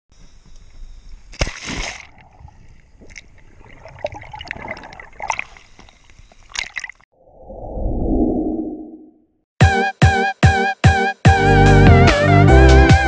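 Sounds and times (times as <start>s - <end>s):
water splashing: 1.4s - 7.1s
water bubbling: 1.8s - 9.1s.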